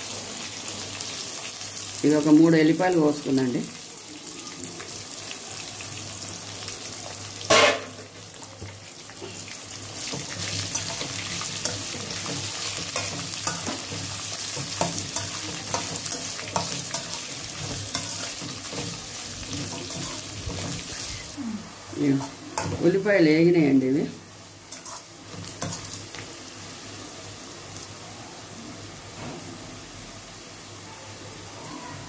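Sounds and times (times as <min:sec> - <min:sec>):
onions sizzling in oil: 0:00.0 - 0:32.0
metal spoon scraping pan: 0:10.0 - 0:21.3, 0:24.7 - 0:26.0.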